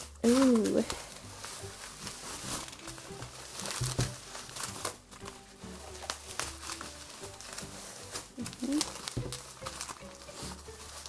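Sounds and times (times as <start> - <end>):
bubble wrap crinkling: 0.0 - 11.0
faint background music: 0.0 - 11.0.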